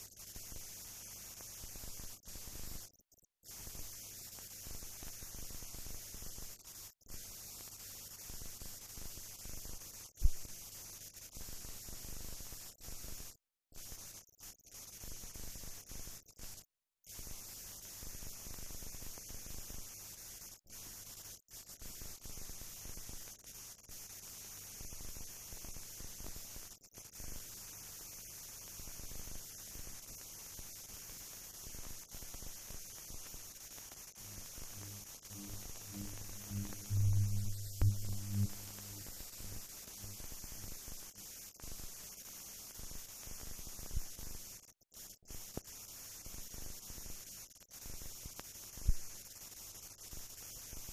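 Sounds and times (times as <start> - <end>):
background hiss: 0.0 - 50.9
electrical mains hum: 32.6 - 41.1.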